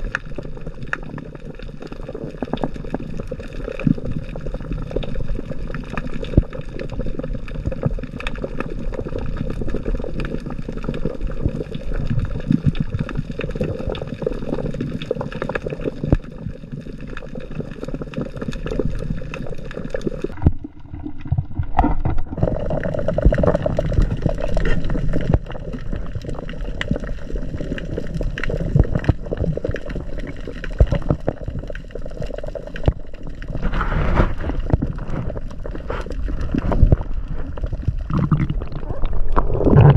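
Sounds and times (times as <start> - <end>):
crackling clicks: 0.0 - 39.9
underwater rushing rumble: 17.3 - 39.9.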